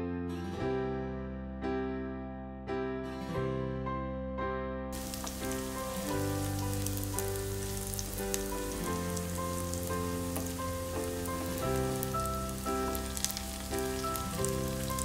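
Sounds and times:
background piano music: 0.0s - 15.0s
shallots sizzling in hot oil: 5.0s - 15.0s.

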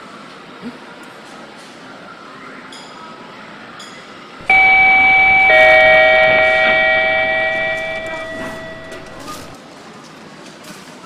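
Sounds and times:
elevator arrival chime: 4.4s - 9.5s.

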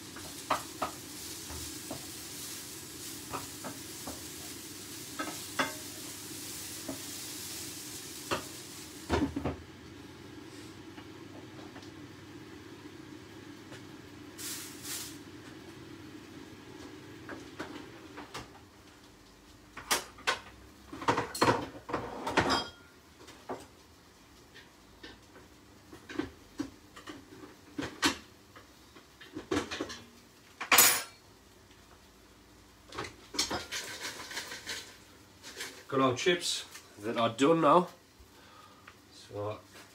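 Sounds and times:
pans and dishes clinking: 5.1s - 5.9s, 21.0s - 22.9s, 33.3s - 35.9s
kitchenware clattering: 21.0s - 22.9s, 29.4s - 31.2s, 33.3s - 35.9s.

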